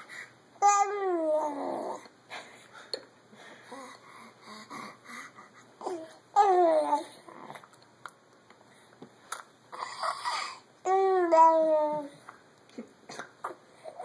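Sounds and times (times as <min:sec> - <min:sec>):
infant drawn-out vocal sound: 0:00.0 - 0:02.1, 0:03.7 - 0:07.7, 0:09.7 - 0:12.2, 0:13.4 - 0:14.0
infant babbling: 0:00.6 - 0:02.0, 0:09.8 - 0:12.2.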